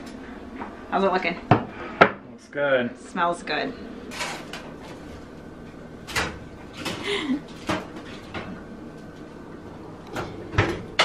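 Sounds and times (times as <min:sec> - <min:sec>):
oven door shutting: 0:06.0 - 0:07.0, 0:10.1 - 0:11.0.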